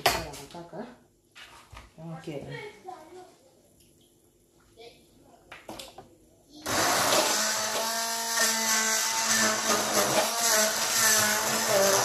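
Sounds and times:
stick blender whirring: 6.6s - 12.0s.

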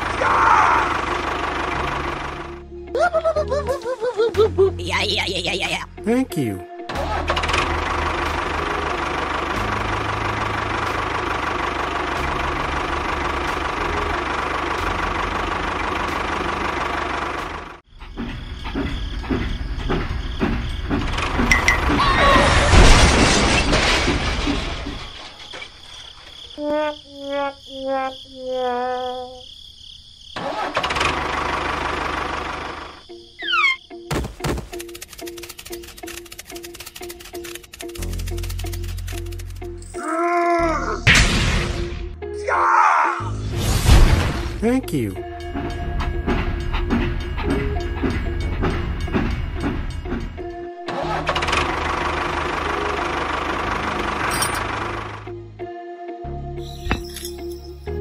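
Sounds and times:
tractor engine chugging: 0.0s - 2.9s, 7.0s - 22.0s, 30.4s - 39.9s, 44.6s - 55.3s
falling whistles: 33.4s - 33.8s.

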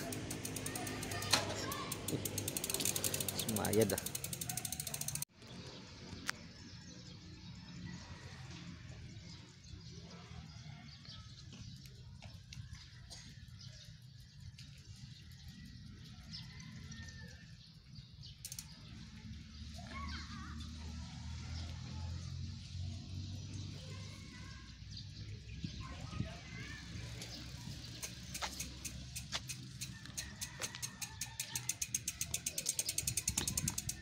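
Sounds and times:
bicycle freewheel ticking: 0.0s - 5.3s, 18.3s - 18.9s, 27.1s - 34.0s.

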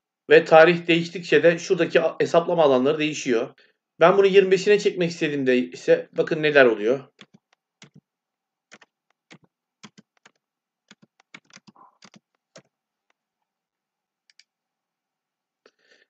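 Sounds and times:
computer keyboard keystrokes: 7.2s - 8.0s, 8.7s - 12.7s.

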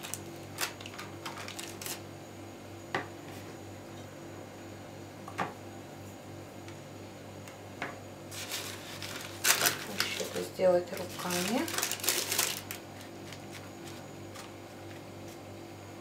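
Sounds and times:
baking paper rustling: 0.0s - 2.1s, 8.3s - 15.5s
steady low hum: 0.0s - 16.0s.

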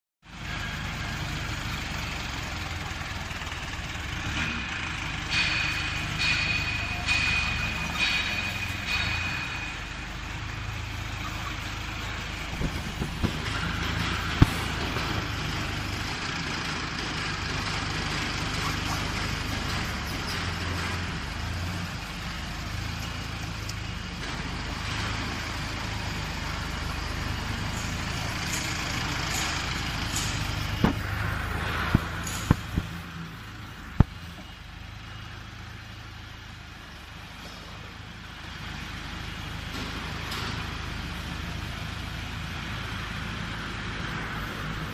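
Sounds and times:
skid steer loader engine running: 0.3s - 44.9s
sharp metallic knocks: 4.3s - 17.2s, 18.6s - 26.5s, 27.3s - 34.5s.

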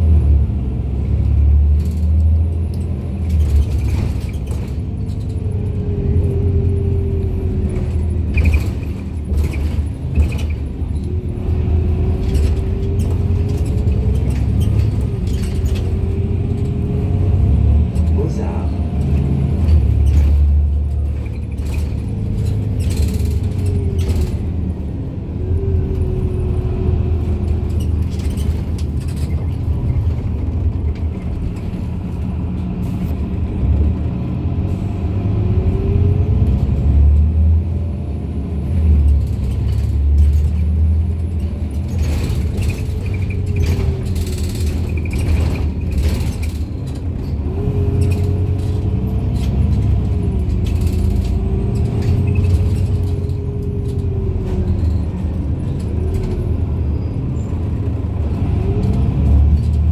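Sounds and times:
bus engine rumble and whine: 0.0s - 59.9s
knocks and rattles: 2.8s - 17.1s, 18.8s - 24.8s, 38.7s - 56.7s.

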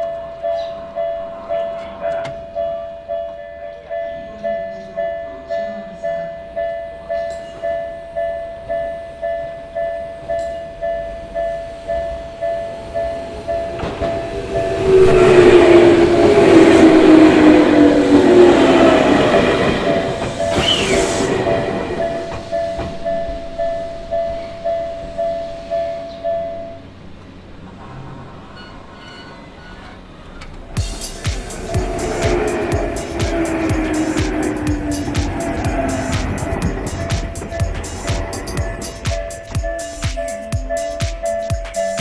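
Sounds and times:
train passing: 0.0s - 42.0s
high wheel squeal: 13.0s - 26.6s, 27.8s - 39.8s.

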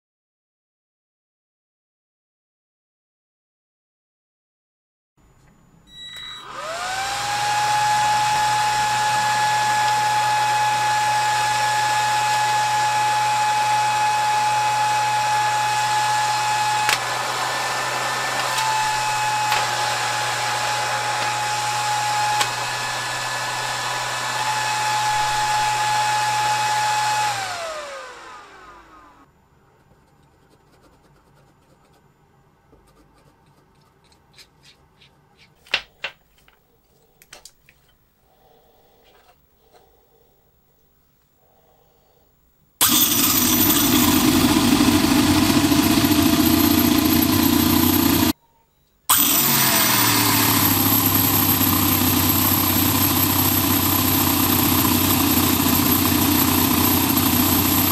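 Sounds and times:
electric cooling fan whine: 5.2s - 29.8s.

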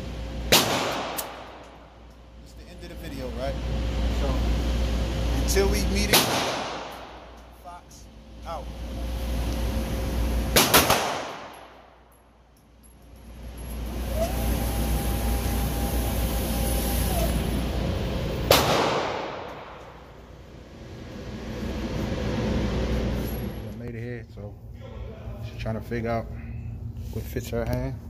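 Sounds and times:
electric target carrier whine: 0.0s - 28.0s
steady low hum: 0.0s - 28.0s
pistol shots echoing: 10.6s - 11.7s, 18.5s - 19.8s.

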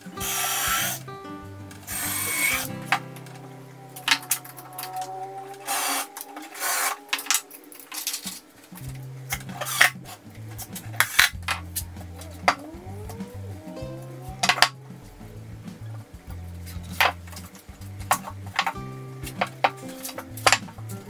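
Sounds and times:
background music with bass line: 0.0s - 5.6s, 8.7s - 21.0s
tools and boards clattering: 4.0s - 12.7s, 14.4s - 14.8s, 16.6s - 20.9s.

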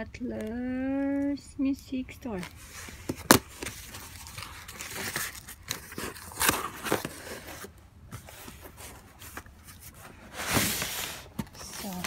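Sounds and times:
cardboard box scraping and rustling: 2.4s - 12.0s.

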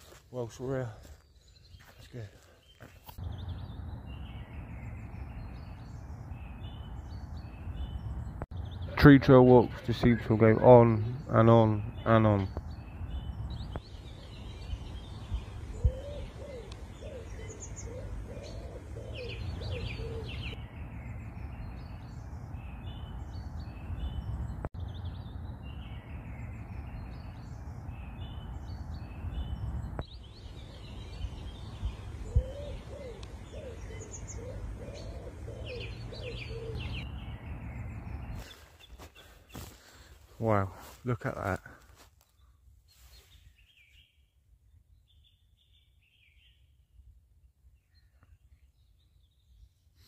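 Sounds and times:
small birds chirping: 0.0s - 46.8s, 47.6s - 50.0s
pigeon cooing: 15.7s - 20.6s, 32.2s - 37.0s.

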